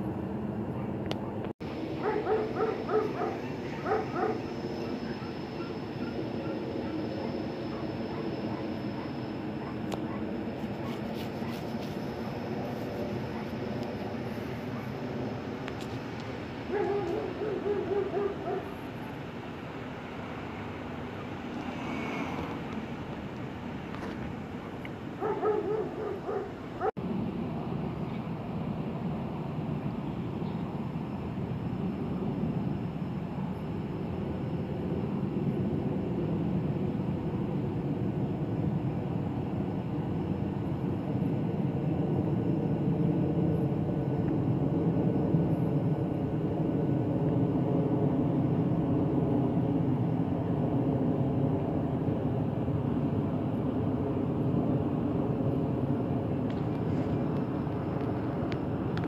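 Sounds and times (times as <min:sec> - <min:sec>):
jet engines rumbling overhead: 0:00.0 - 0:59.0.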